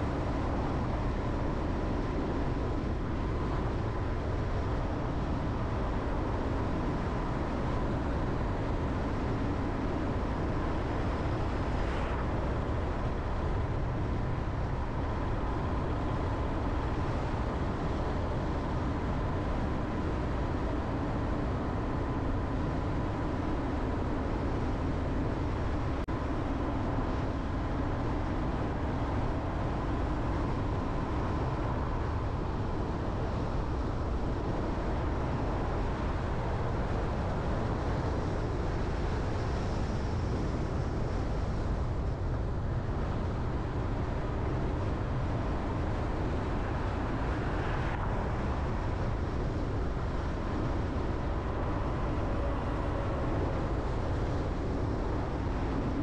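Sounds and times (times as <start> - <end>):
car engine and road noise: 0.0 - 56.0
faint steady whine: 0.0 - 56.0.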